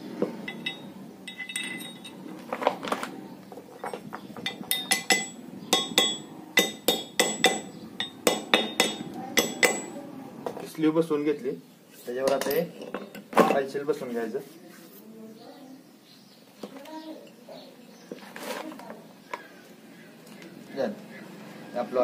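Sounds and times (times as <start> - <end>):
metal parts clinking: 0.5 - 3.0
hammer striking metal: 4.4 - 10.0.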